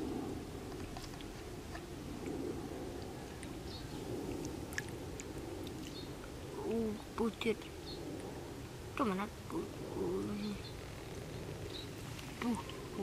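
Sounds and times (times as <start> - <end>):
low background noise: 0.0 - 13.0.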